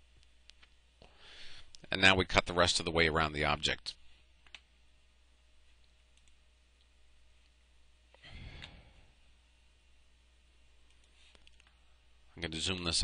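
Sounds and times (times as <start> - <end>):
breath into microphone: 1.1 - 1.7, 8.2 - 9.1.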